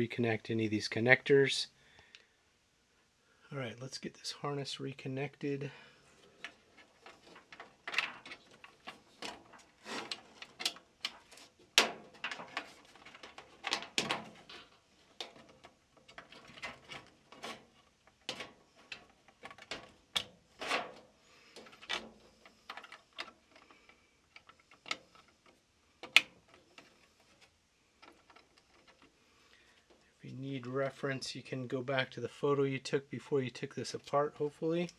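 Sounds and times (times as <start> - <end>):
wires rustling: 6.0 - 30.3.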